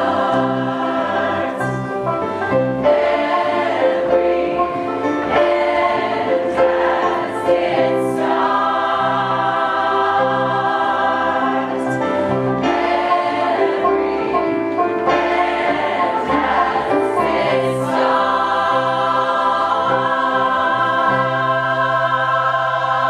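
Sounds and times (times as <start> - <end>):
choir singing in harmony: 0.0 - 23.0.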